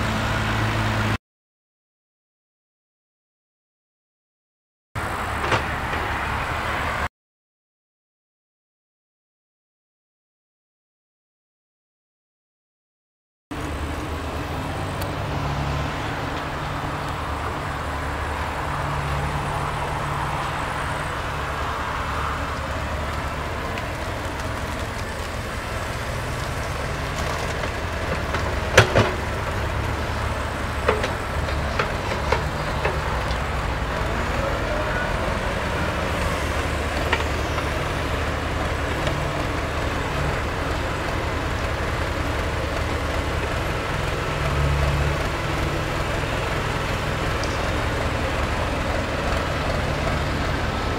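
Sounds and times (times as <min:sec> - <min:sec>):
diesel engines running: 0:00.0 - 0:01.2, 0:05.0 - 0:07.1, 0:13.5 - 0:50.9.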